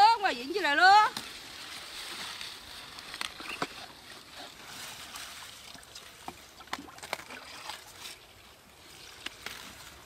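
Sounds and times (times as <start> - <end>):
leaves rustling: 0.0 - 10.0
stems snapping: 9.2 - 9.8.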